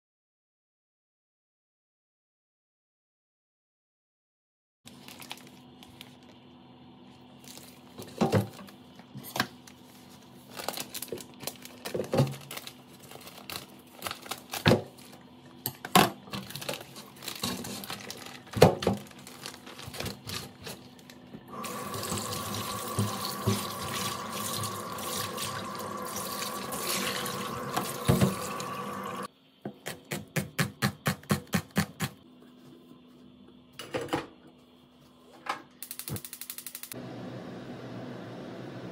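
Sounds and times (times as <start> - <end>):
kitchen tap running: 21.5 - 29.3.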